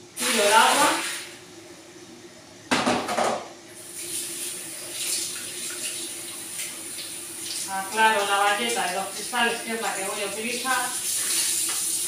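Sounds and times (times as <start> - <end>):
water gushing into sink: 0.0 - 1.4, 3.8 - 12.0.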